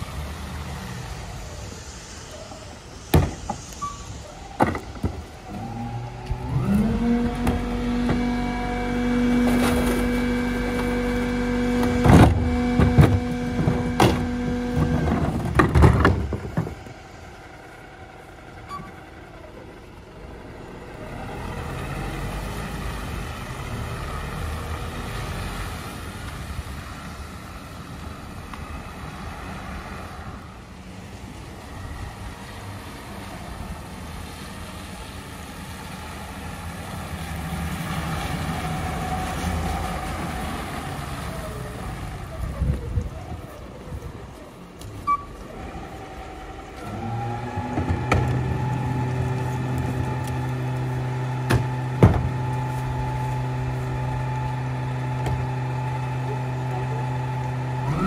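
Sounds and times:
hydraulics whining: 0.0 - 32.5, 35.5 - 58.0
truck engine running low: 0.0 - 58.0
cart banging and trash falling: 7.2 - 17.0, 47.5 - 50.5, 51.4 - 53.1.

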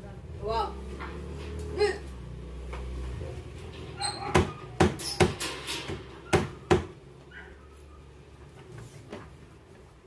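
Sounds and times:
sharp knocks on cabinet panels: 4.3 - 7.0.

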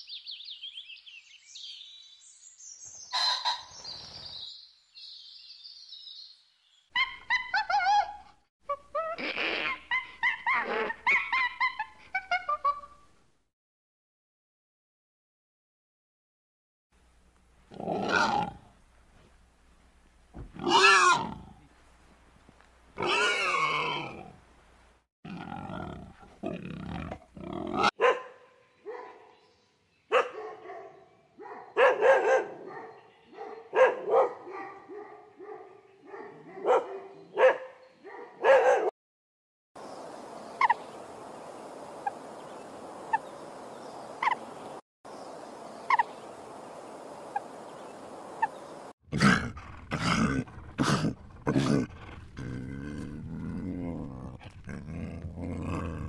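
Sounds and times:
dog yipping and whimpering: 7.0 - 8.3
lion roaring: 17.7 - 18.7, 20.4 - 21.6, 25.3 - 27.9, 49.1 - 56.0.

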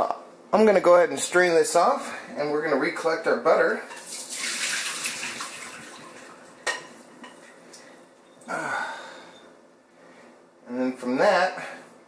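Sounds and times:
water splashing through strainer: 4.0 - 6.5
kitchenware clink: 6.6 - 7.4.

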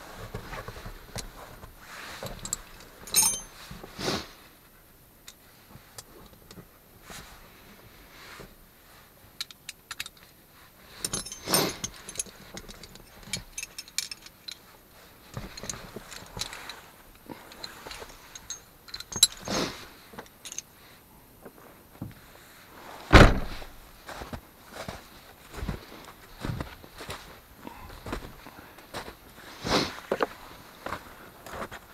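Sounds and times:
clicks and clinks of handling: 2.3 - 3.6, 9.4 - 10.3, 11.0 - 14.7, 15.3 - 20.7
heavy thump: 23.1 - 23.7.

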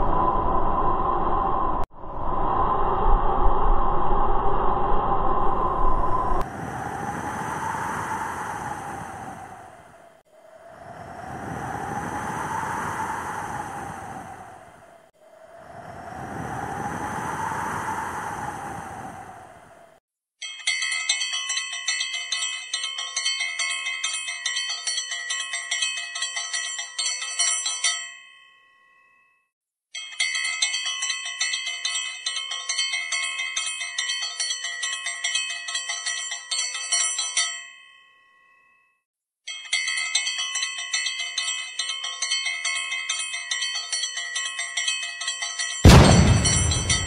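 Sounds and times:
rushing noise: 0.0 - 19.8, 45.9 - 47.0
small bells ringing rapidly: 20.4 - 28.7, 39.5 - 45.9.

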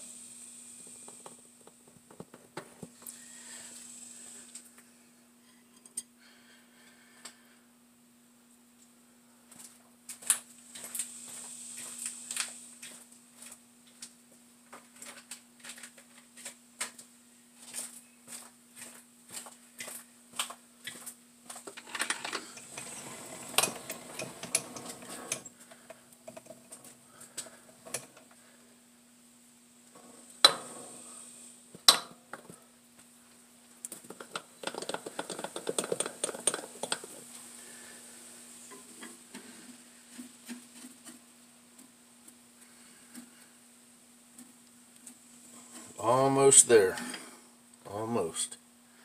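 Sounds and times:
faint high whine: 2.8 - 9.4, 22.0 - 33.9
steady low hum: 17.2 - 47.9.

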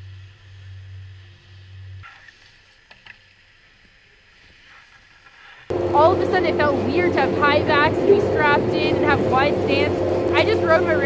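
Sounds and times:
wind buffeting microphone: 5.7 - 11.0.

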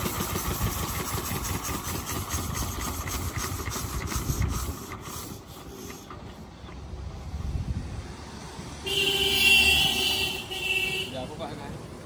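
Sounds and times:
diesel engine thumping: 0.0 - 7.9.

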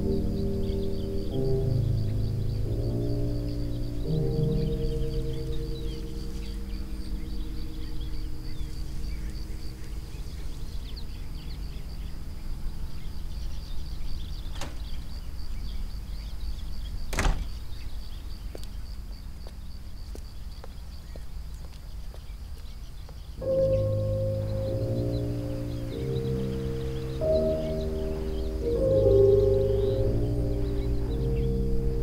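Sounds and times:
low rumble: 0.0 - 16.8
door latch knock: 14.5 - 15.0, 17.1 - 17.5.

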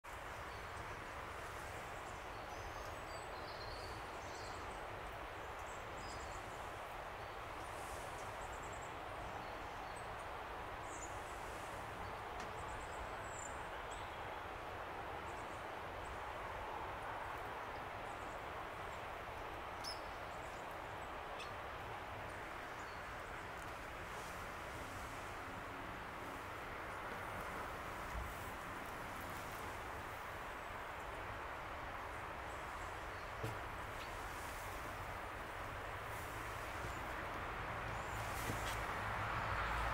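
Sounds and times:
small birds chirping: 17.8 - 39.5.

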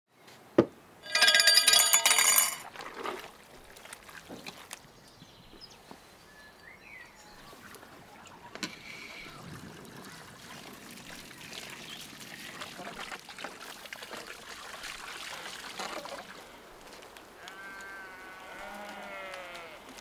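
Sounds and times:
steel rod clanking and ringing: 1.0 - 2.6.

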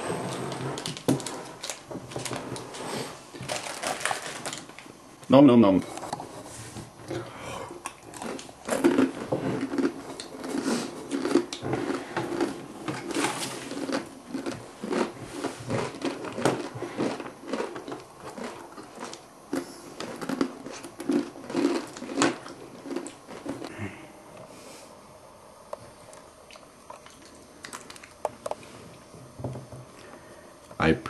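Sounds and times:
dry noodles crunched and chewed: 7.8 - 23.7, 26.1 - 28.6.

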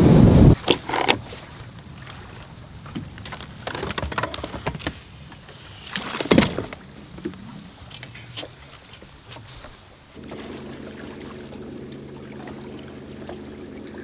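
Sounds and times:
fishing gear knocks and clicks: 2.9 - 9.5.

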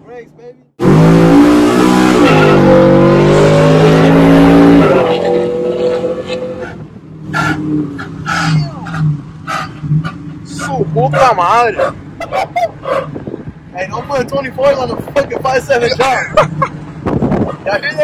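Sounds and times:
pickup truck engine revving: 0.8 - 13.5.

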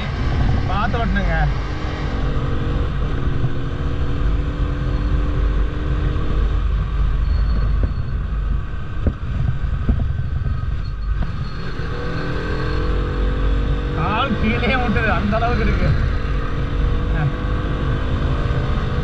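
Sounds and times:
wind rumble on microphone: 0.0 - 19.0.

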